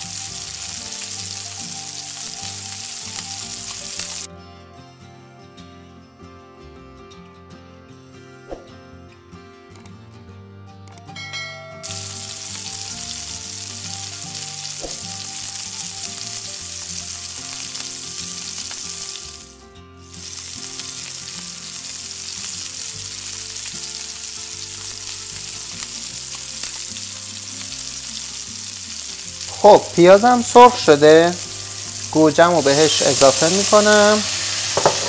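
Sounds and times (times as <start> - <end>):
mushrooms sizzling in oil: 0.0 - 4.3, 11.8 - 35.0.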